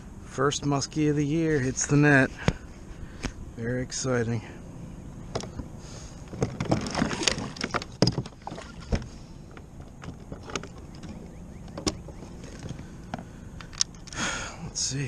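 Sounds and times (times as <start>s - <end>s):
gear knocking against kayak hull: 6.2s - 13.3s.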